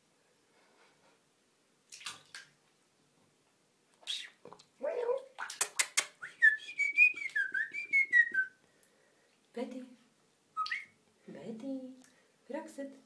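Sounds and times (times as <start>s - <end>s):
water splashing: 1.9s - 2.6s, 5.2s - 6.0s
person whistling a tune: 6.2s - 8.6s, 10.6s - 10.9s.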